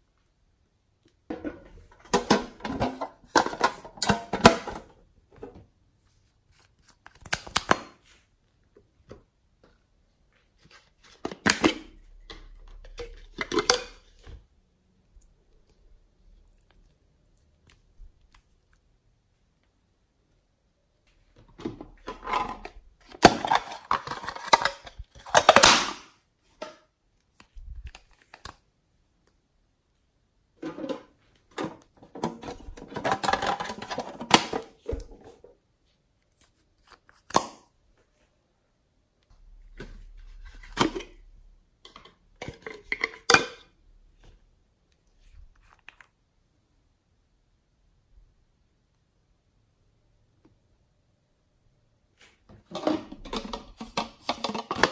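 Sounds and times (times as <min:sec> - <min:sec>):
slime squishing: 0:15.0 - 0:19.0.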